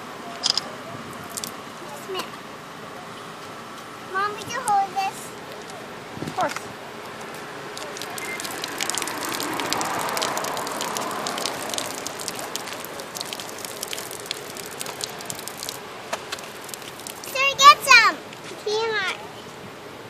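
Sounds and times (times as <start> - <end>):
drinking fountain water splattering: 7.2 - 18.1.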